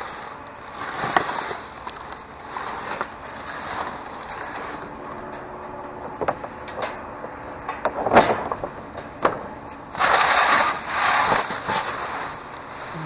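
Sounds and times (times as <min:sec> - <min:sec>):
loud rustling: 0:00.0 - 0:05.4, 0:10.0 - 0:13.0.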